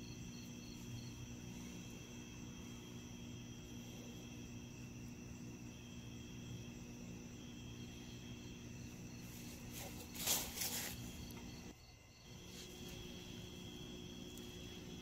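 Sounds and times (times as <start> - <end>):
crickets and insects chirring: 0.0 - 15.0
low steady hum: 0.0 - 15.0
loud rustling: 9.2 - 11.2.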